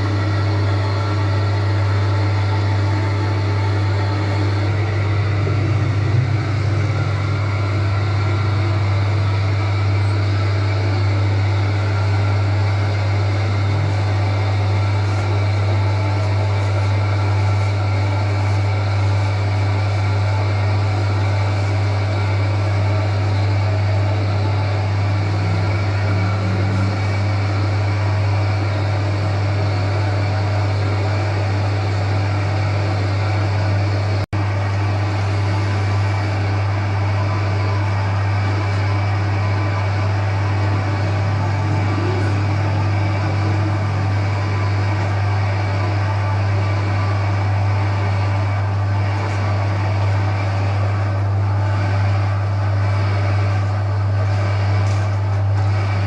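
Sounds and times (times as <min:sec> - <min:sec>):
dough kneading machine running: 0:00.0 - 0:56.0.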